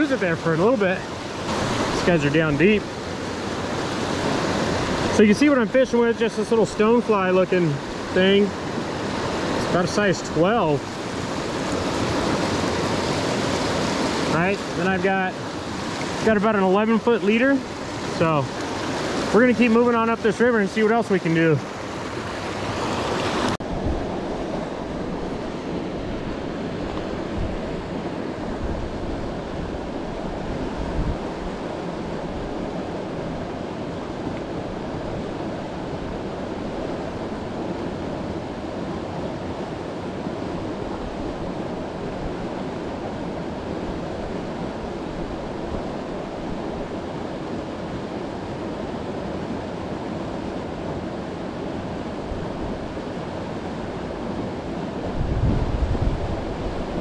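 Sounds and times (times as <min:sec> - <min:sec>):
river rushing over boulders: 0:00.0 - 0:57.0
wind buffeting microphone: 0:23.2 - 0:33.5, 0:53.8 - 0:57.0.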